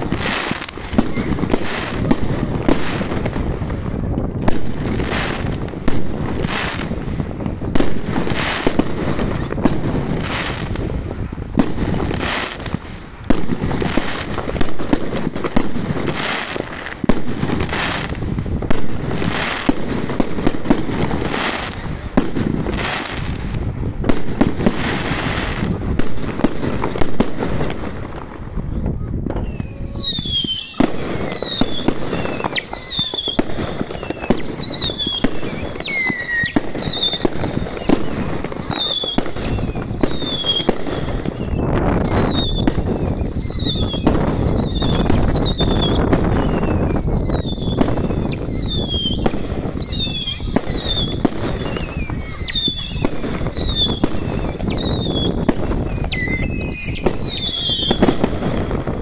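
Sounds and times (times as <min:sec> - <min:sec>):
firework whistles: 0:00.0 - 0:03.2, 0:29.3 - 0:58.4
firework bangs: 0:00.0 - 0:59.0.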